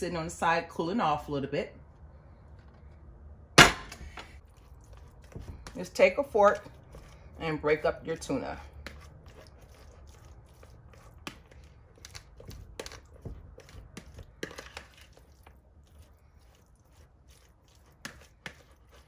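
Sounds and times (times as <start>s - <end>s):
soft squishing of fish: 4.4s - 19.0s
fork scraping plastic bowl: 4.6s - 19.0s.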